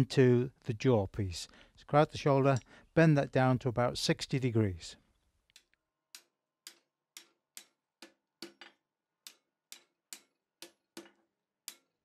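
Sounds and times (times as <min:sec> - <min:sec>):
hammer striking steel on anvil: 0:05.6 - 0:12.0.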